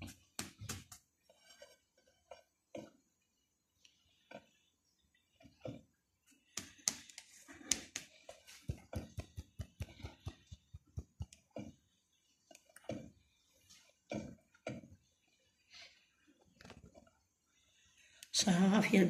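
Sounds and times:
dry pats of grains against palms: 6.5s - 11.7s.

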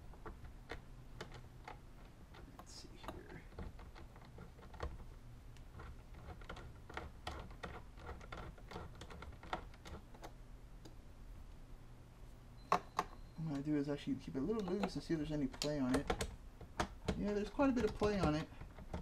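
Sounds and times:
steady low hum: 0.0s - 19.0s
metal parts clicking and tapping: 14.4s - 19.0s.

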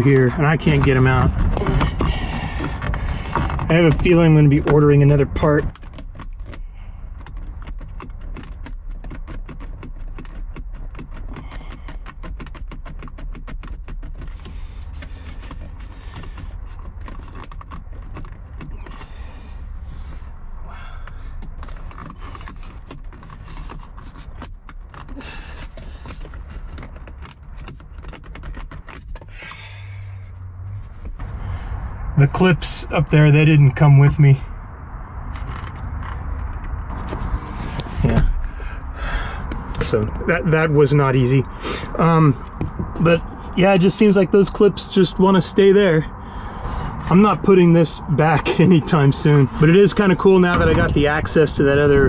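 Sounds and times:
plastic trim panel clicking and creaking: 0.0s - 20.3s, 21.0s - 30.2s
low rumble: 29.6s - 43.3s, 46.1s - 52.0s.

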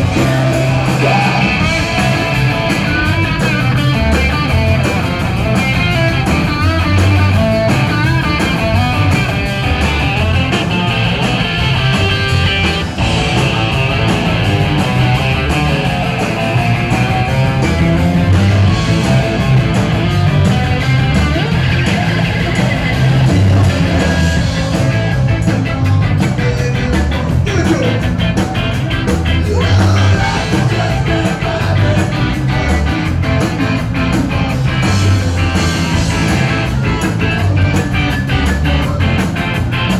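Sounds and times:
live band playing: 0.0s - 39.9s.

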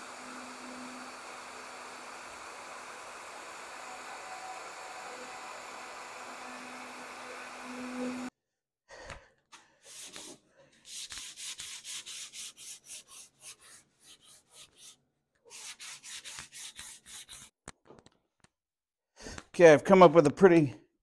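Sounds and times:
sanding block rubbing wood: 9.9s - 17.6s.

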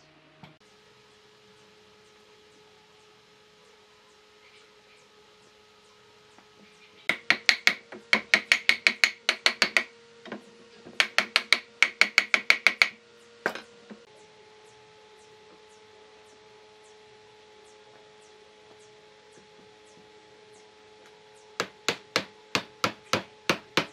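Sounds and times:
faint steady hum: 0.0s - 23.9s
sharp knocks on wood: 7.1s - 9.9s, 10.9s - 13.6s, 21.6s - 23.9s.

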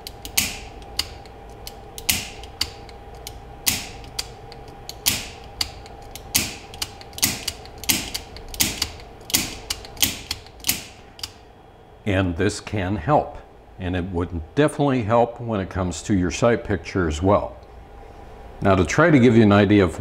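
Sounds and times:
revolver cylinder ticking: 0.0s - 11.4s
revolver hammer snapping: 0.0s - 11.4s.

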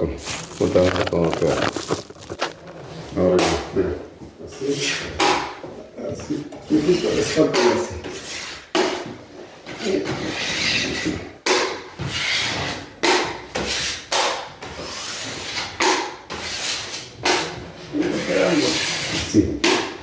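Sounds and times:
taping knife scraping joint compound: 6.8s - 20.0s.

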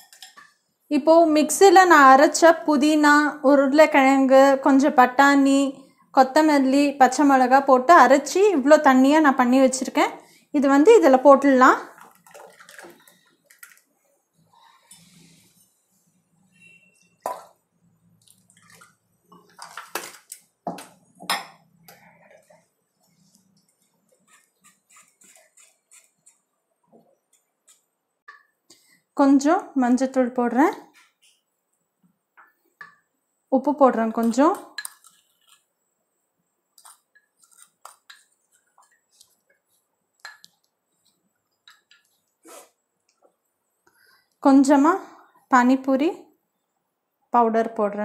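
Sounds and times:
metal kitchenware clinking: 0.0s - 0.5s
paste pouring and splashing: 11.9s - 14.0s, 18.2s - 20.4s.

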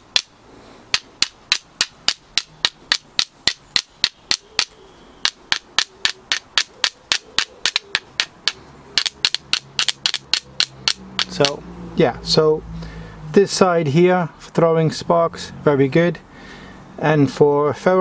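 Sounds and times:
steel striker clicking on flint: 0.1s - 0.3s, 0.9s - 11.6s.

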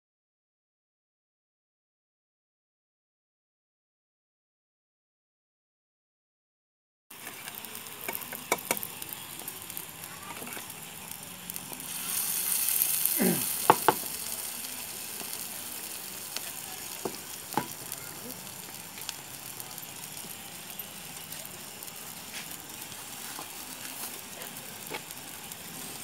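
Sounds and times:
food sizzling on a griddle: 7.1s - 26.0s.

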